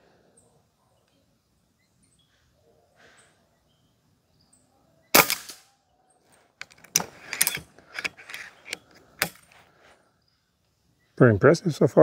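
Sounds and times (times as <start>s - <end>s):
air rifle shot: 5.1s - 5.6s
metallic clicks of rifle lever: 6.6s - 9.6s.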